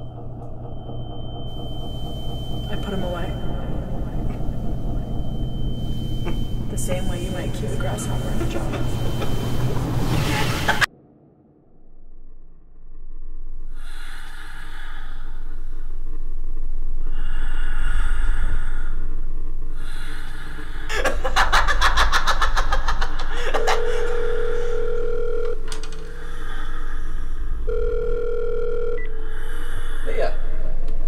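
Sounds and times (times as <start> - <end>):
steady electronic ringing tone: 0.0 - 10.9, 21.5 - 29.7
low rumbling drone: 0.0 - 31.0
glitchy electronic noise: 2.6 - 10.9.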